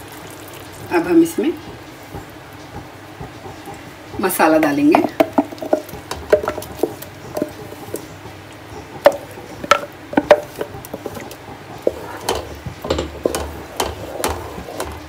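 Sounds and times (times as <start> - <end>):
knocks and taps: 1.6 - 4.2, 5.0 - 8.4, 9.0 - 15.0
wooden spoon scraping jar: 9.1 - 15.0.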